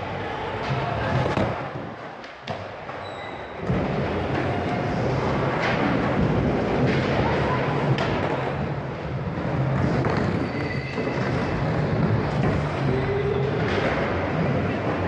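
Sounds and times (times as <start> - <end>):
skateboard wheels rumbling on wood: 3.6 - 15.0.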